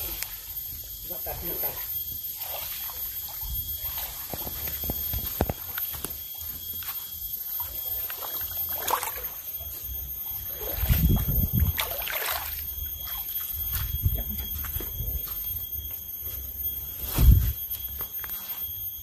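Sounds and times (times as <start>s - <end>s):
water sloshing around wading legs: 2.3s - 14.5s.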